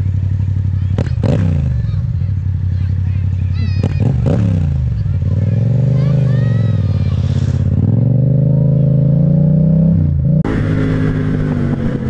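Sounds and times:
motorcycle engine accelerating: 0.0s - 12.0s
motorcycle engine steady note: 7.8s - 12.0s.

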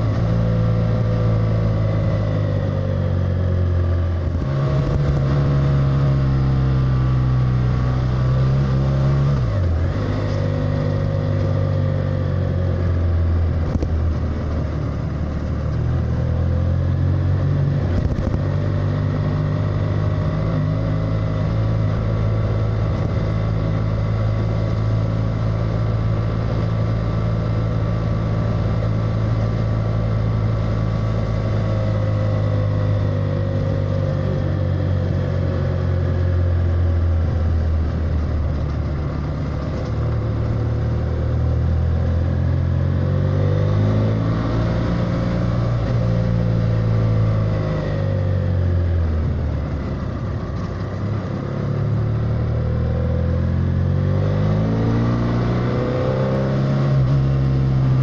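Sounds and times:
motorcycle engine running: 0.0s - 58.0s
wind noise: 12.7s - 16.3s, 17.2s - 19.0s.

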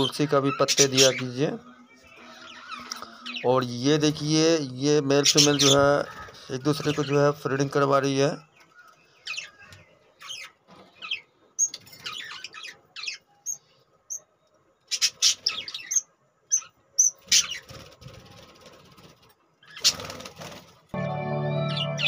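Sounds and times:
budgerigars chirping: 0.0s - 4.0s, 5.2s - 7.4s, 8.7s - 14.3s, 14.9s - 17.8s, 19.6s - 20.2s.

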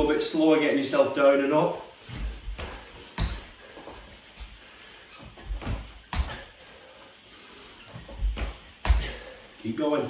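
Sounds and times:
hands and feet thudding on wooden floor: 2.0s - 4.6s, 5.2s - 6.6s, 7.9s - 9.3s.

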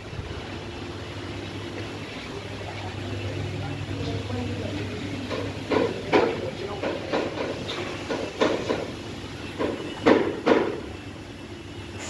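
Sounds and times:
knocks and clanks: 3.6s - 11.0s.

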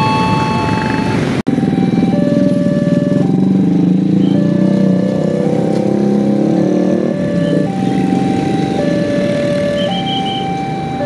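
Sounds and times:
simple tune of held tones: 0.0s - 1.2s
traffic engines rumbling: 0.0s - 11.0s.

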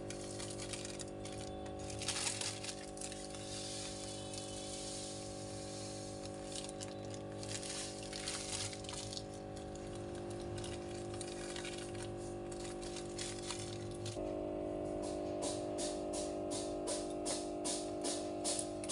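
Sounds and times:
rustling and handling noises: 0.1s - 5.1s, 5.7s - 14.2s.

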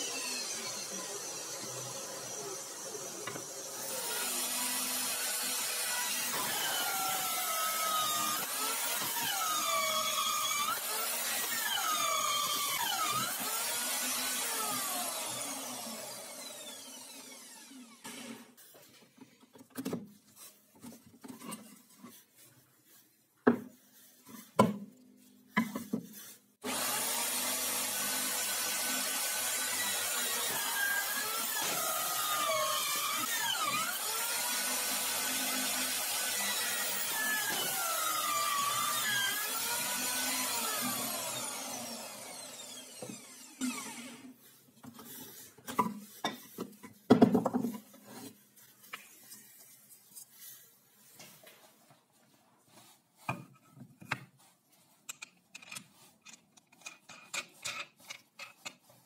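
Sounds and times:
drill press hole saw cutting plywood: 0.0s - 18.5s, 26.6s - 44.4s.

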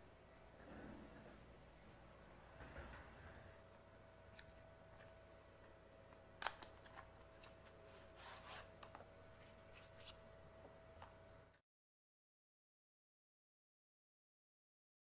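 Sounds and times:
steady low hum: 0.0s - 11.6s.

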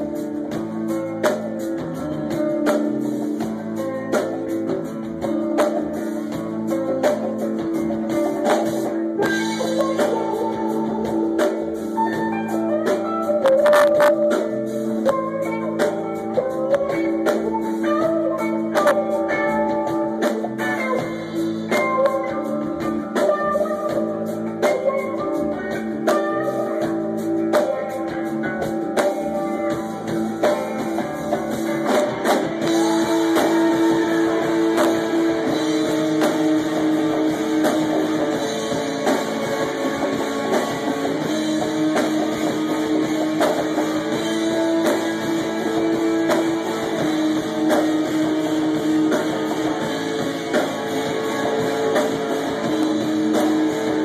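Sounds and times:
bass guitar: 0.0s - 54.0s
drum kit: 0.0s - 54.0s
electric guitar: 0.0s - 54.0s.

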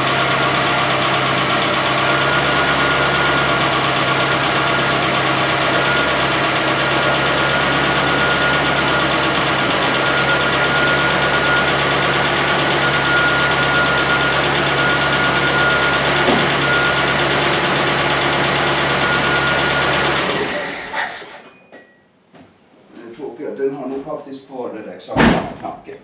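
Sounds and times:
car engine idling: 0.0s - 20.5s.

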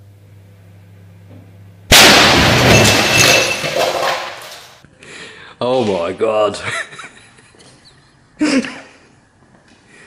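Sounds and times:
microwave oven humming: 0.0s - 2.7s
airbag deploying with loud bang: 1.9s - 4.5s.

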